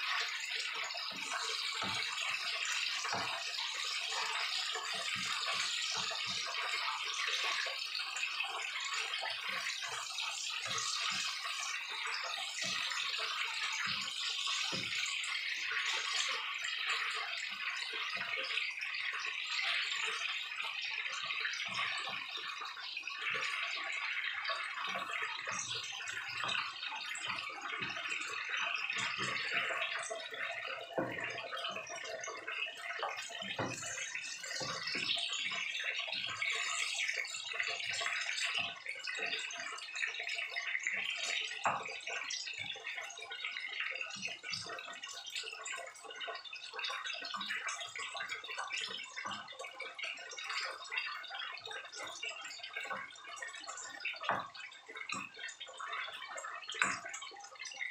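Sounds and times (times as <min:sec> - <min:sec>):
food sizzling in hot oil: 0:00.0 - 0:45.2.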